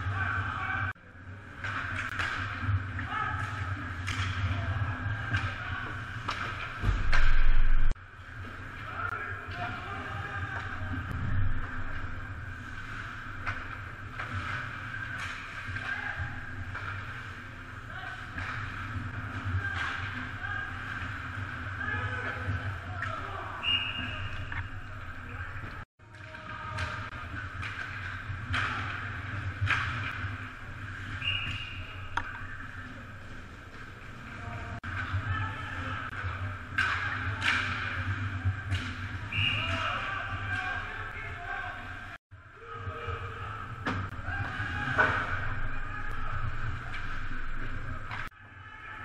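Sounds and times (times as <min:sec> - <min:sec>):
referee's whistle: 0:23.6 - 0:24.6, 0:31.1 - 0:32.6, 0:39.3 - 0:40.0.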